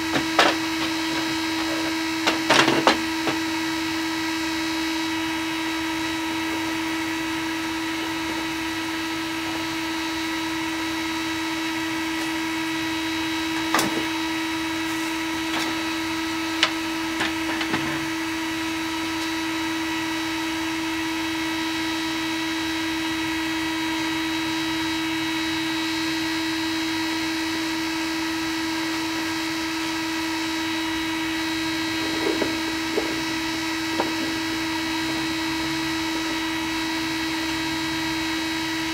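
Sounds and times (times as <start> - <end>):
three d printer humming: 0.0 - 22.1, 26.2 - 38.9.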